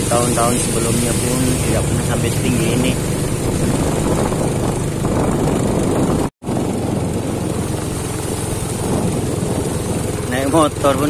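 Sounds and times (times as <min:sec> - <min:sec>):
tyres hissing through water: 0:00.0 - 0:03.8
motorbike engine at low speed: 0:00.0 - 0:11.0.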